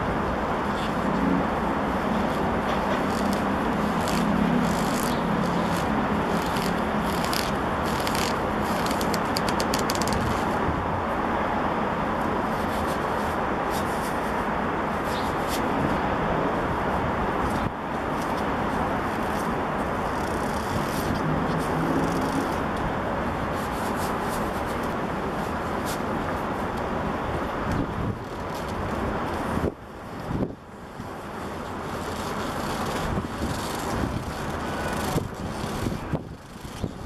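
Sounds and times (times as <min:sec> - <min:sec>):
city traffic noise: 0:00.0 - 0:37.0
leather gloves rubbing: 0:00.7 - 0:10.6, 0:17.5 - 0:22.7, 0:31.0 - 0:37.0.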